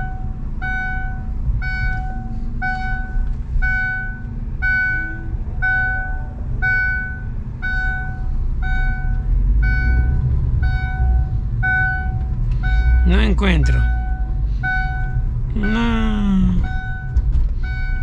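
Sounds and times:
car engine rumble from cabin: 0.0s - 18.0s
electronic warning chime beeping: 0.0s - 18.0s.

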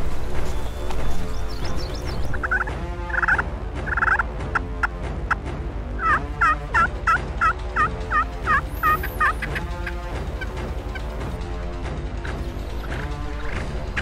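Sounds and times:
turkey call scratchy notes: 6.0s - 10.0s.

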